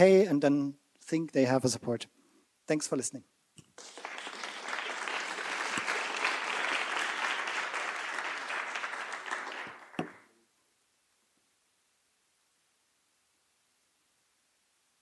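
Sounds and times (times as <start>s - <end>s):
audience applauding: 3.8s - 10.3s.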